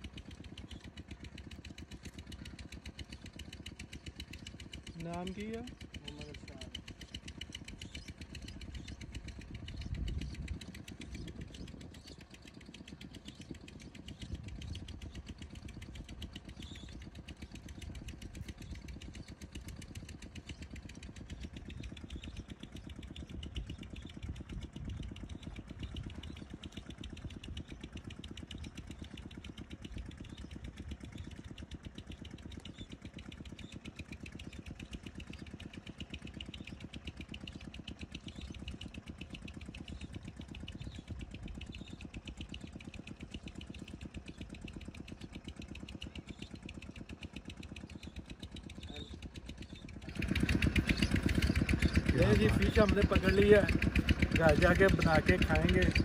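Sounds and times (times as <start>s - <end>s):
small engine idling: 0.0s - 56.0s.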